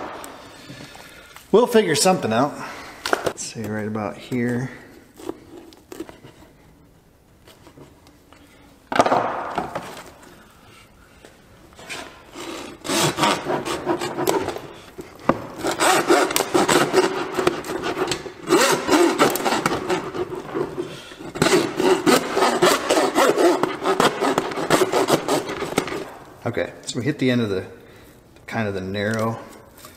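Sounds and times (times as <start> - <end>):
bow saw cutting bone: 11.9 - 26.1.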